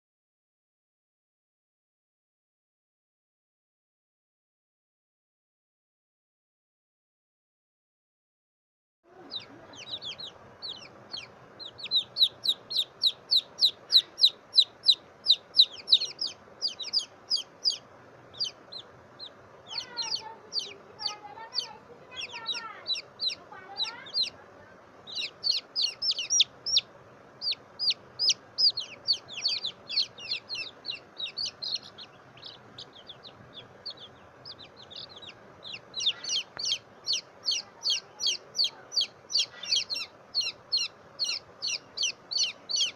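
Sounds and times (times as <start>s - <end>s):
baby chick peeping: 9.1s - 42.9s.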